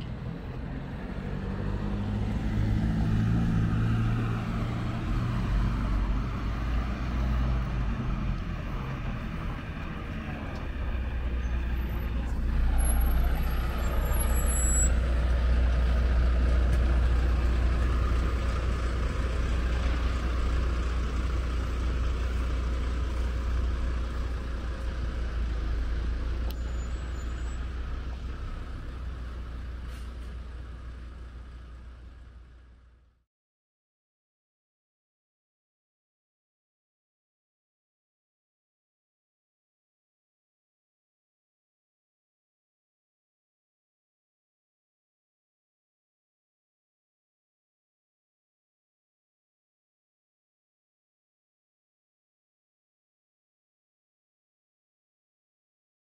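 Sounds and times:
heavy road traffic: 0.0s - 33.2s
large vehicle engine rumble: 0.0s - 33.2s.

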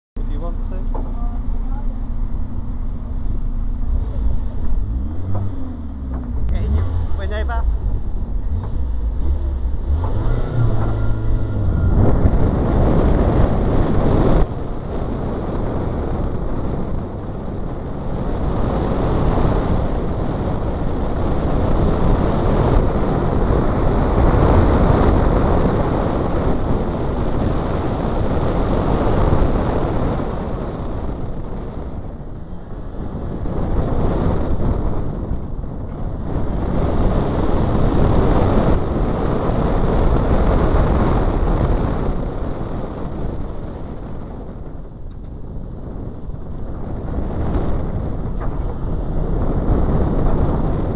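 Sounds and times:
road noise: 0.2s - 50.9s
wind buffeting microphone: 0.2s - 50.9s
car engine revving: 0.4s - 45.4s.

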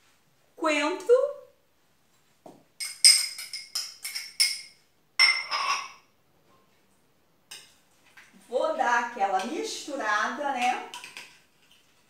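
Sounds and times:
metal utensil clinking on glass bowl: 2.8s - 6.0s.

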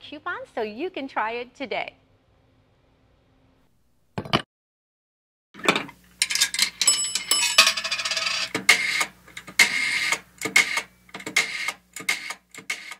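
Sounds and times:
bell-like ring: 6.8s - 8.4s
sharp irregular clicks and clatters: 8.4s - 12.9s.

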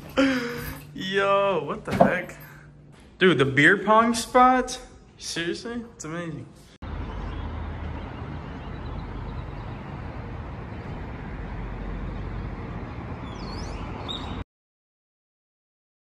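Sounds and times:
city traffic hum: 6.8s - 14.4s.

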